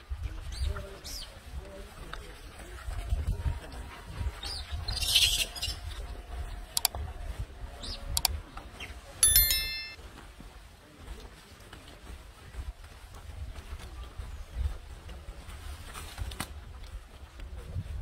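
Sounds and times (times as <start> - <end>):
bell ding: 9.2 - 10.0.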